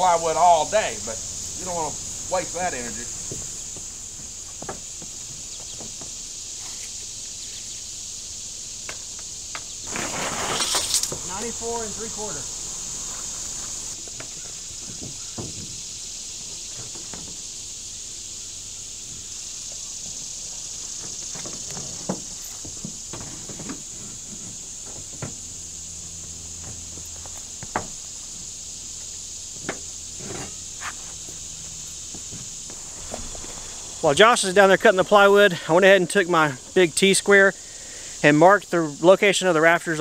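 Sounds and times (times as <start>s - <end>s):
insect chorus: 0.0s - 40.0s
footsteps on roof: 3.2s - 6.2s, 30.8s - 33.9s.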